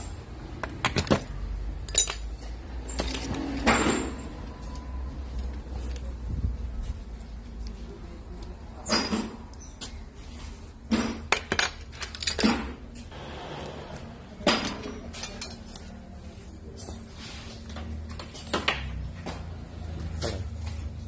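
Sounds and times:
metal parts clinking and knocking: 0.5s - 6.0s, 10.9s - 13.1s, 14.4s - 15.9s.

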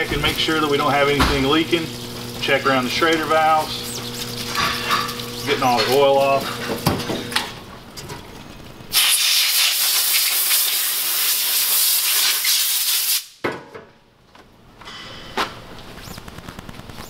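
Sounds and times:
air blow gun hissing: 8.9s - 13.4s.

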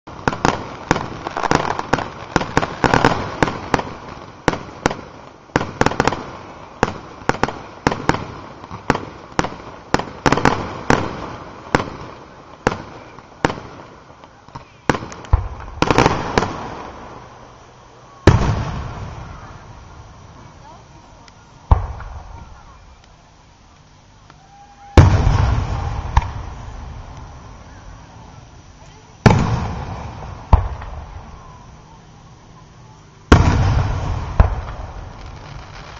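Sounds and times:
loud boom: 24.9s - 27.1s.

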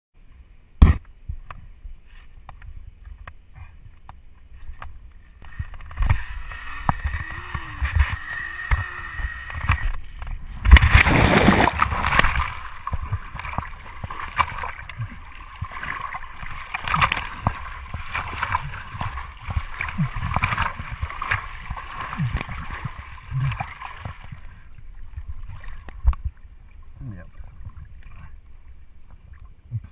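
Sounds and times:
water sloshing: 3.6s - 29.9s
rushing wind: 9.6s - 23.1s
loud splash into water: 10.6s - 12.6s
swimming strokes splashing: 10.6s - 26.4s.

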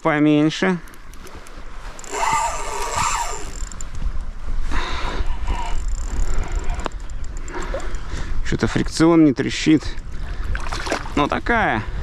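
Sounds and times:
wind buffeting microphone: 0.8s - 12.0s
fishing reel whirring: 1.5s - 8.2s.

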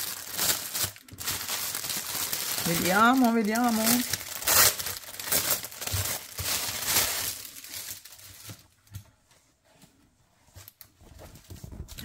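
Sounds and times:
plastic wrapping crinkling: 0.0s - 9.0s.

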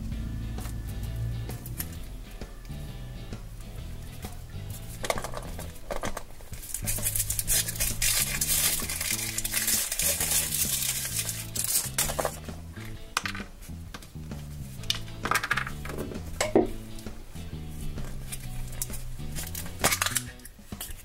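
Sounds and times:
background music with low notes: 0.0s - 21.0s
foil wrapper crinkling and tearing: 4.8s - 13.0s, 18.1s - 21.0s.

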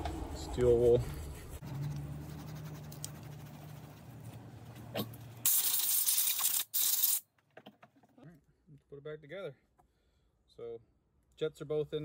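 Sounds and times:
spray hiss: 5.5s - 7.2s.

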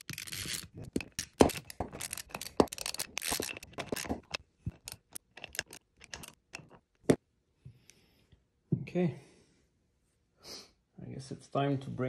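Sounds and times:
socket ratchet clicking: 0.0s - 6.8s
metal clinks and scrapes: 0.0s - 7.2s.

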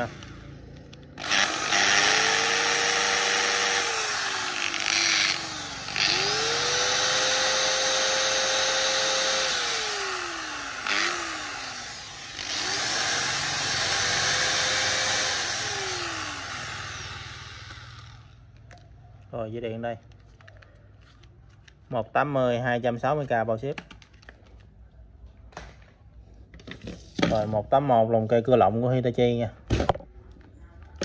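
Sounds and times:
electric screwdriver whine: 1.2s - 18.3s.

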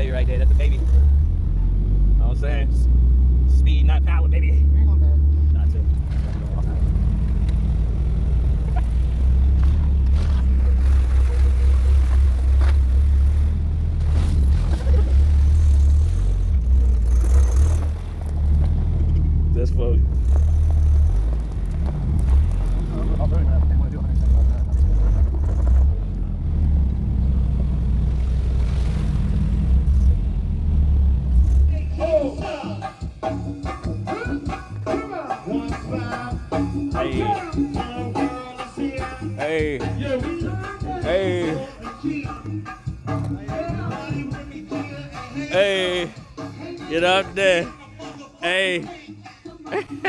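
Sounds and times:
car engine droning: 0.0s - 32.3s.

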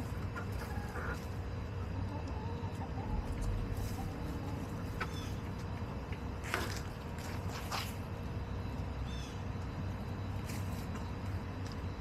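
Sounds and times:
hens clucking softly: 0.0s - 6.8s
steady low rumble: 0.0s - 12.0s.

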